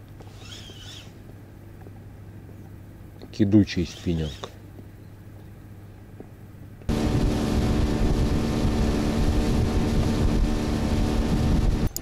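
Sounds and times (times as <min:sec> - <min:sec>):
outboard motor running: 0:06.9 - 0:12.0
steady rushing noise: 0:06.9 - 0:12.0.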